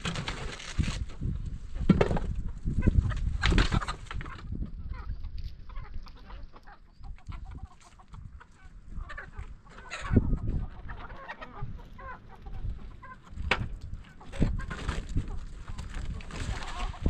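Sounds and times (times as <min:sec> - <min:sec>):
chickens clucking: 0:00.2 - 0:17.0.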